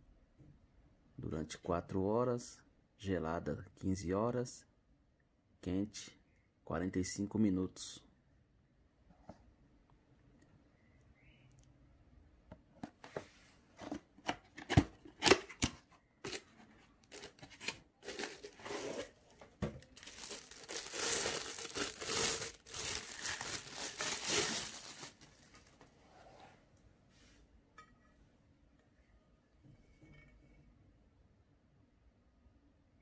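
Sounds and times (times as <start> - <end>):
wrapping crinkling and rustling: 16.3 - 25.8.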